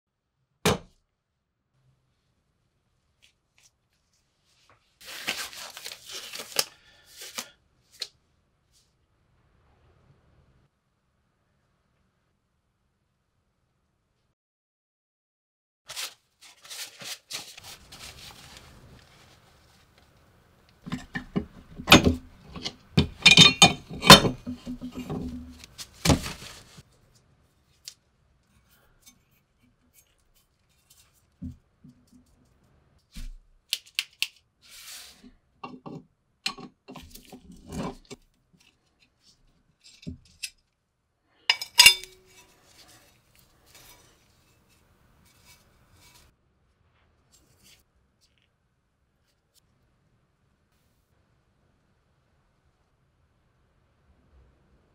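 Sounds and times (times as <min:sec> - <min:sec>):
metal parts clinking: 0:20.9 - 0:25.7, 0:41.5 - 0:42.5.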